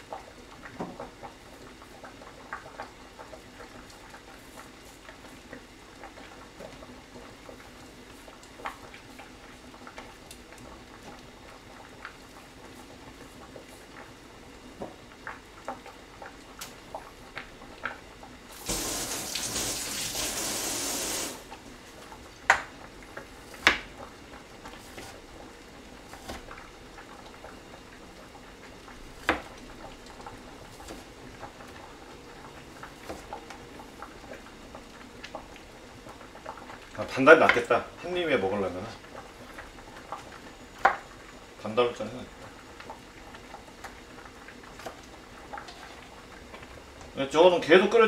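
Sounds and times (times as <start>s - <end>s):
kitchen faucet running: 18.5s - 21.5s.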